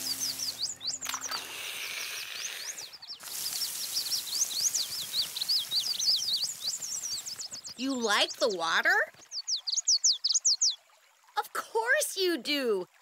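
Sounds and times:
water spraying and splashing: 0:00.0 - 0:09.4
small songbirds chirping: 0:00.0 - 0:11.0.

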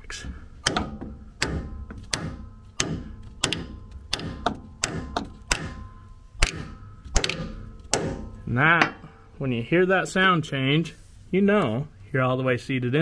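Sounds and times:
hammer tapping on metal tool: 0:00.6 - 0:09.1.

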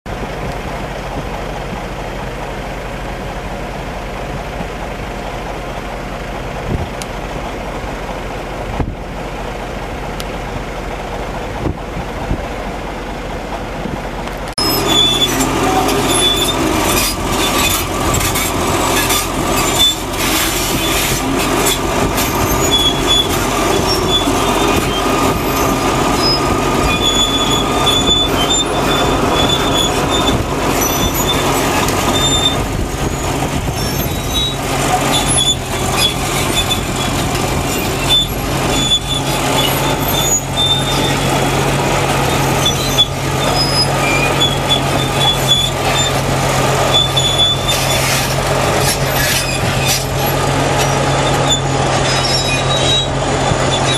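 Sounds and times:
heavy diesel engine running: 0:00.0 - 0:53.9
metal clanking: 0:14.6 - 0:53.9
metallic squeals: 0:14.6 - 0:53.9.

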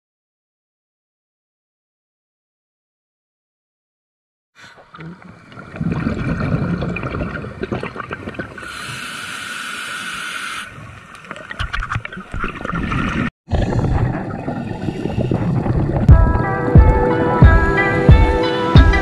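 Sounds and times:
exhaled bubbles gurgling: 0:04.7 - 0:10.0, 0:10.7 - 0:17.0
regulator breath hiss: 0:08.6 - 0:10.7
music: 0:16.1 - 0:19.0.

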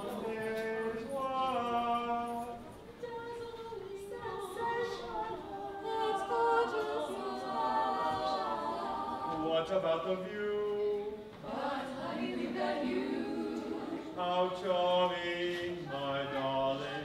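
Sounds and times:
group singing with long held notes: 0:00.0 - 0:17.0.

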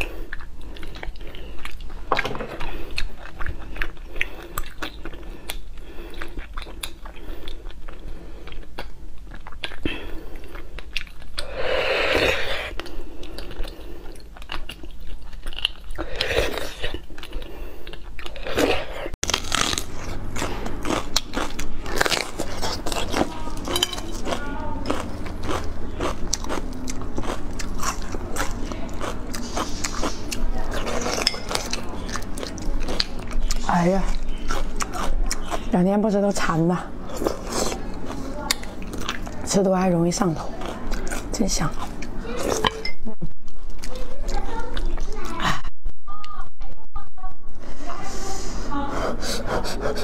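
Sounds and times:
wet chewing: 0:00.0 - 0:42.9, 0:43.5 - 0:45.4
slurping: 0:09.5 - 0:14.6
crunching raw pepper: 0:18.0 - 0:35.6.

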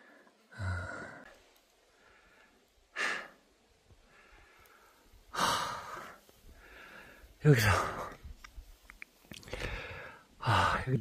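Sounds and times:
man breathing hard: 0:01.9 - 0:08.1, 0:09.4 - 0:10.9.

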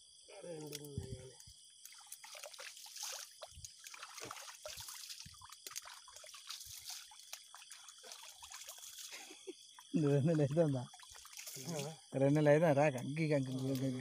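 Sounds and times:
water trickling and dripping: 0:00.4 - 0:14.0.

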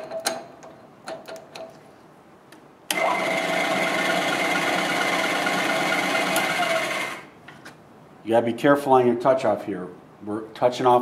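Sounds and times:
milling machine motor whine: 0:02.9 - 0:07.3.

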